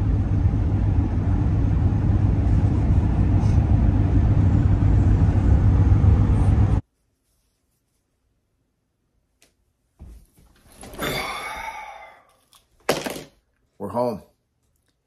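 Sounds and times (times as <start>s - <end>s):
road and engine rumble in cab: 0.0s - 6.8s.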